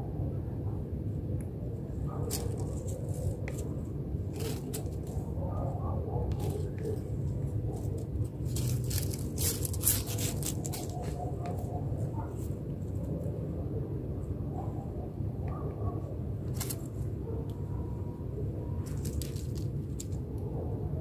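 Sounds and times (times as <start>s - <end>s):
steady low rumble: 0.0s - 21.0s
cats scuffling in dry leaves: 1.9s - 13.0s, 16.4s - 17.2s, 18.8s - 20.2s.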